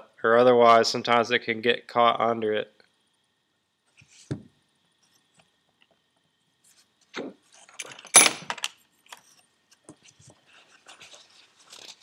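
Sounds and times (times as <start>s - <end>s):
metal parts clinking and jangling: 7.7s - 8.7s.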